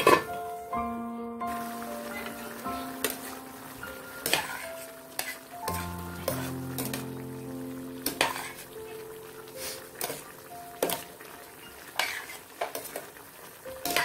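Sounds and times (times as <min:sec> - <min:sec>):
food sizzling in a pan: 0:00.0 - 0:00.7, 0:01.5 - 0:14.0
soft background music: 0:00.0 - 0:14.0.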